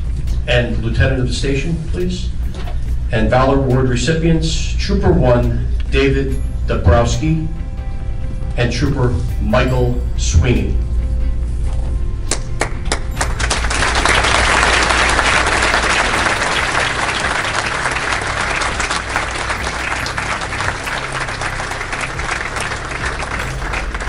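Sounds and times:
audience applauding: 12.6 - 24.0.

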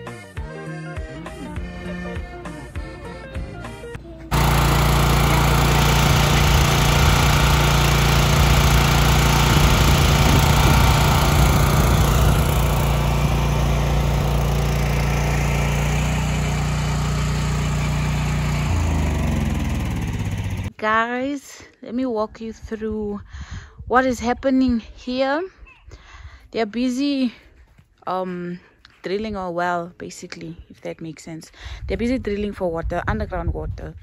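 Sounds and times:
drilling rig engine running: 4.3 - 20.7.

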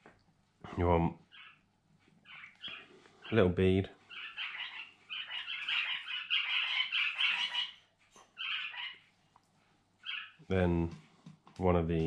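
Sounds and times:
cockatiels chirping: 1.3 - 1.6, 2.2 - 3.5, 4.1 - 9.0, 10.0 - 10.4.

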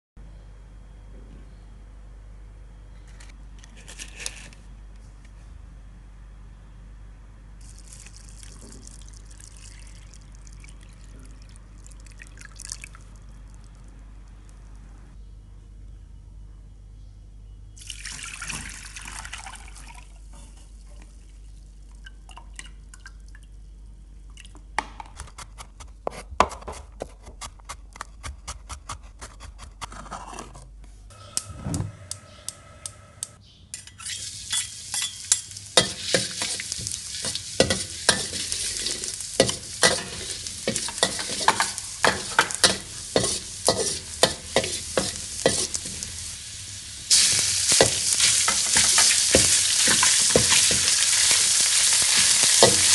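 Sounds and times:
water pouring through a strainer: 7.6 - 13.1
metal spatula scraping a wok: 33.8 - 46.2
garlic sizzling in oil: 34.0 - 52.9
gas burner igniting: 34.2 - 52.9.

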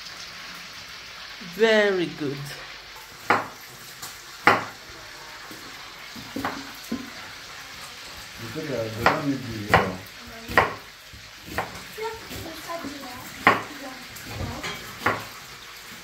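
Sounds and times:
food sizzling in a pan: 0.0 - 16.0
knife knocking on cutting board: 3.2 - 3.6, 4.4 - 4.8, 9.0 - 10.8, 13.4 - 13.7.

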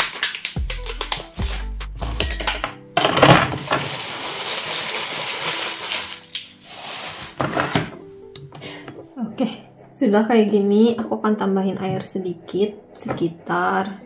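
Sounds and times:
rustling hiss of flour coating: 3.8 - 7.4.

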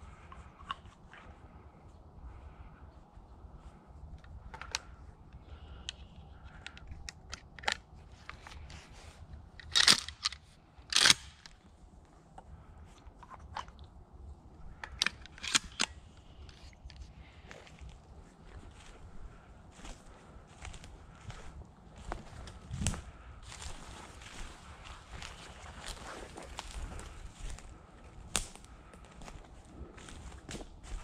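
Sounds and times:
footsteps crunching dry leaves: 19.7 - 31.0.

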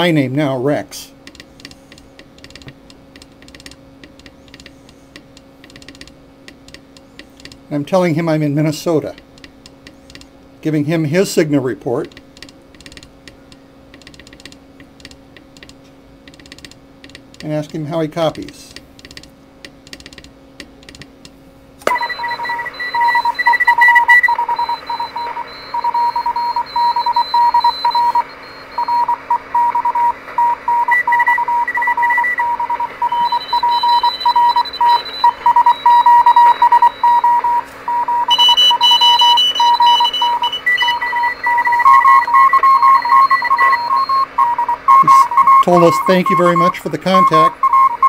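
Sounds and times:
higher morse beep: 21.8 - 48.0
morse code beeps: 21.9 - 48.0
radio hiss and static: 21.9 - 48.0.

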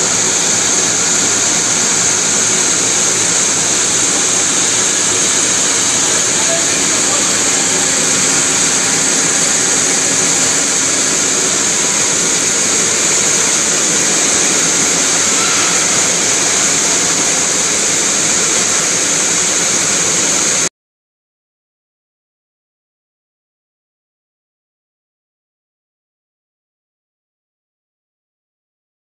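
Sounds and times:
wire machines high-pitched hiss: 0.0 - 20.7.

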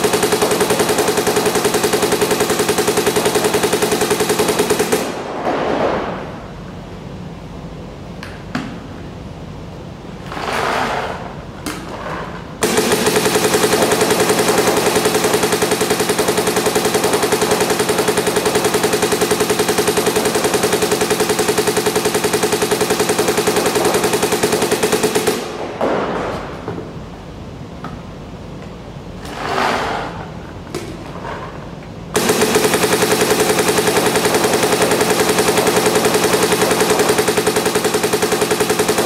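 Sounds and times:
paintball marker rapid firing: 0.0 - 5.2, 12.6 - 26.0, 32.2 - 39.0.

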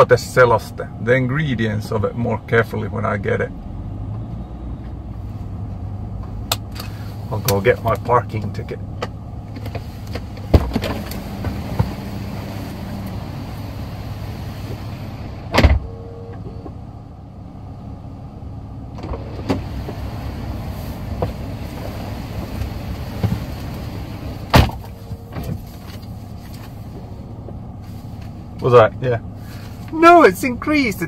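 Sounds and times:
low cabin hum: 0.0 - 31.0
car door thudding shut: 10.5 - 12.0, 15.5 - 15.9, 24.4 - 25.6.

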